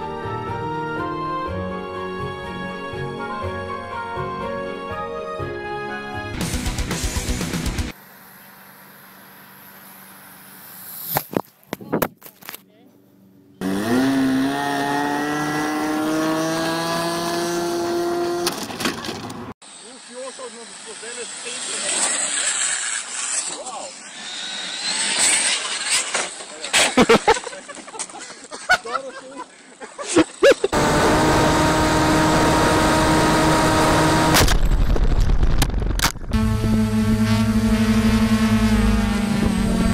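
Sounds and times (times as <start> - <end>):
plane hitting the ground: 34.3 - 39.9
steady motor hum: 36.3 - 39.9
model airplane engine running: 36.4 - 39.9.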